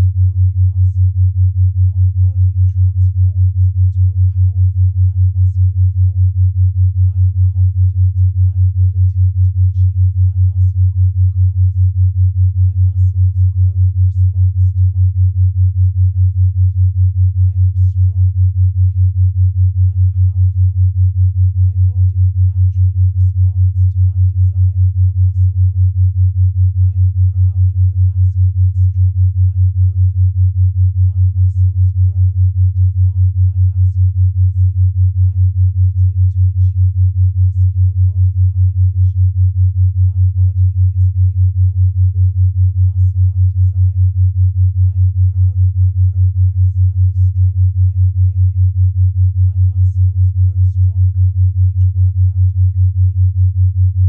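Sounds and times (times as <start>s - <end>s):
pulsing low sine tone: 0.0s - 54.0s
faint murmured voice: 1.8s - 6.1s, 17.4s - 19.2s, 19.8s - 20.7s, 21.5s - 26.1s, 26.7s - 30.3s, 31.0s - 39.2s, 40.0s - 44.2s, 49.4s - 53.5s.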